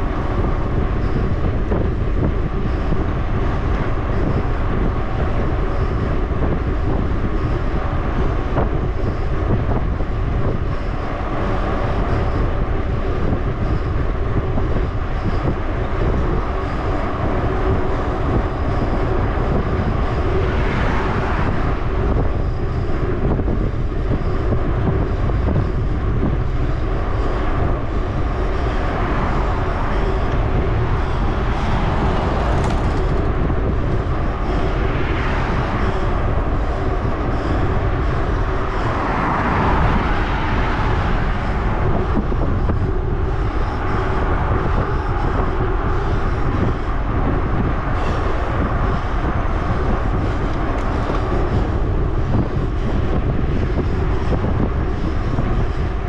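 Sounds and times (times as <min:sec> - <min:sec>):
bicycle tyre hum on asphalt: 0:00.0 - 0:56.0
wind rush over microphone: 0:00.0 - 0:56.0
car passing: 0:28.7 - 0:46.3.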